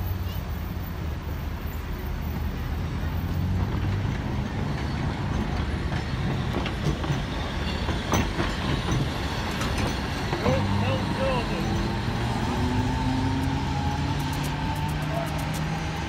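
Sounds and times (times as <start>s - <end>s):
tram wheels rumbling on rails: 0.0s - 16.0s
sharp clicks: 14.2s - 16.0s.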